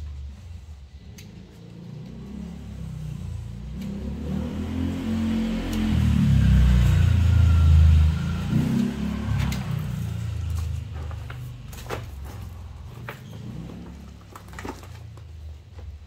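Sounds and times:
vehicle engine rumbling past: 0.0 - 15.6.

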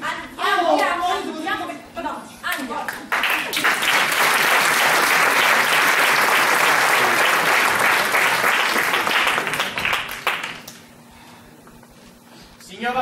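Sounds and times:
audience applauding: 2.9 - 10.8.

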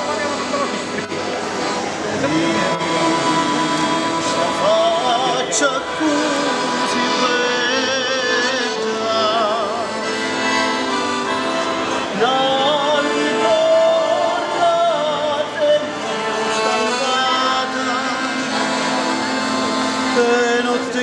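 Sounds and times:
accordion music: 0.0 - 21.0
person singing with vibrato: 2.0 - 21.0.

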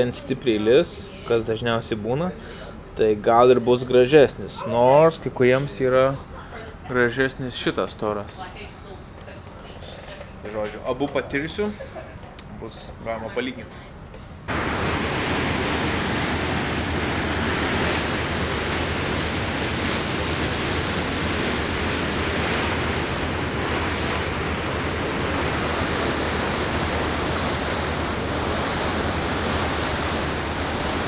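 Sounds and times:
water rushing along boat hull: 14.5 - 31.0.

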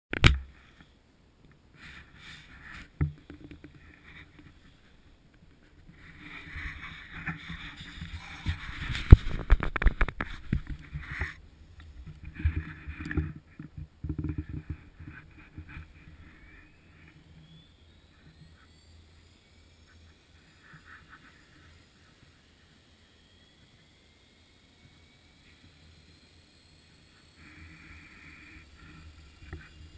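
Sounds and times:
electric motor whine rising: 6.0 - 13.4, 14.3 - 29.9.

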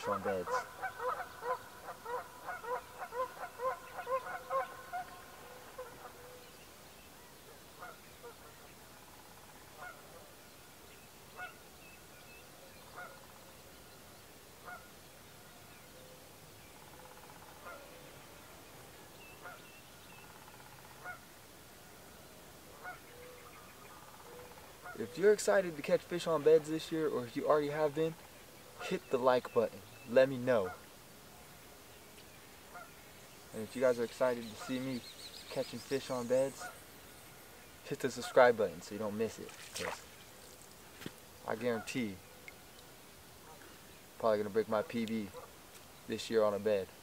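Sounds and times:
geese honking: 0.0 - 6.4, 7.8 - 8.6, 9.7 - 10.3, 12.9 - 13.4, 14.6 - 14.9, 19.4 - 19.7, 20.3 - 21.3, 22.7 - 25.8, 26.8 - 30.9, 32.7 - 33.0, 33.6 - 36.8, 38.0 - 38.7, 41.5 - 42.2, 44.8 - 45.6.

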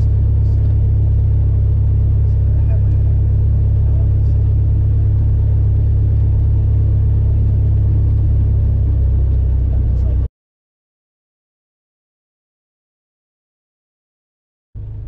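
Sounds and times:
light airplane engine drone: 0.0 - 10.3.

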